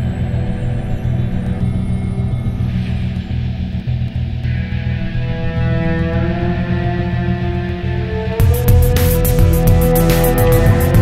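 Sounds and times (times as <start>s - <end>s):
long held synth tones: 0.0s - 11.0s
low pulsing bass: 0.0s - 11.0s.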